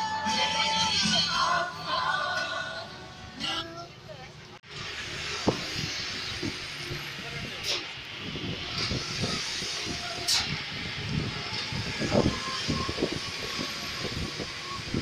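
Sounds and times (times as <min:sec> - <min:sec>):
vehicle road and engine noise: 0:00.0 - 0:15.0.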